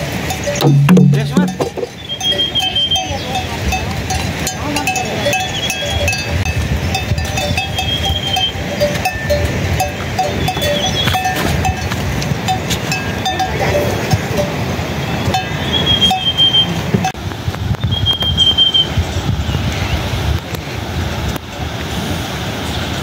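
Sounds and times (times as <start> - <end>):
livestock bells clinking: 0.0 - 17.2.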